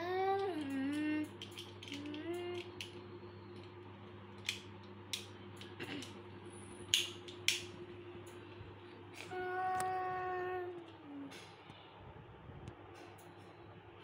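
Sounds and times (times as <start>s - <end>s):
toy car parts clicking: 0.4s - 2.9s.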